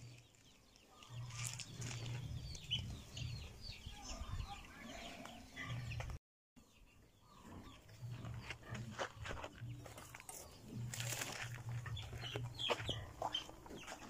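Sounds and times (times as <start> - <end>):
small birds chirping: 0.0 - 14.0
chickens clucking: 7.2 - 14.0.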